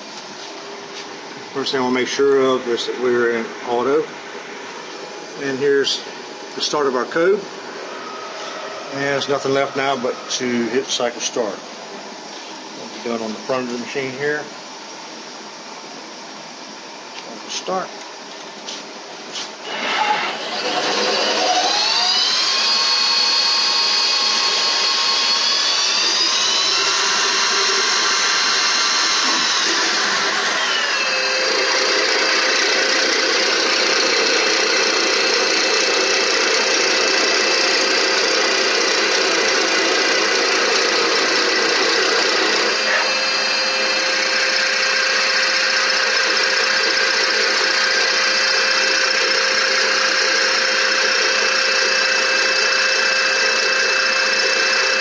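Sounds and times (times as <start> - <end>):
machine hum: 0.0 - 55.0
lathe spindle whining: 7.6 - 12.4, 19.6 - 55.0.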